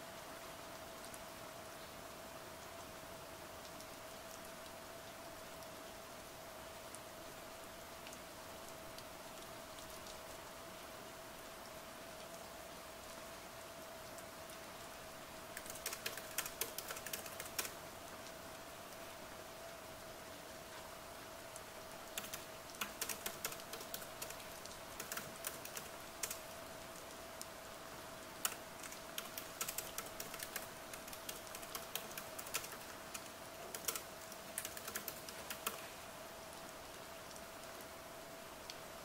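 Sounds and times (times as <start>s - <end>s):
faint steady hiss: 0.0s - 39.0s
laptop keyboard typing: 15.6s - 17.8s, 22.1s - 26.4s, 28.4s - 35.9s.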